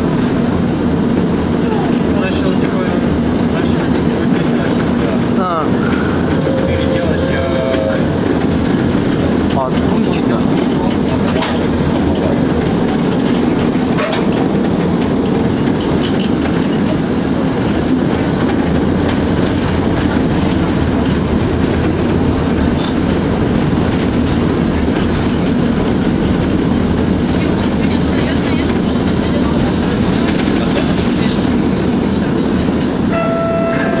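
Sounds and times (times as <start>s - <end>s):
tram wheels rumbling on rails: 0.0s - 34.0s.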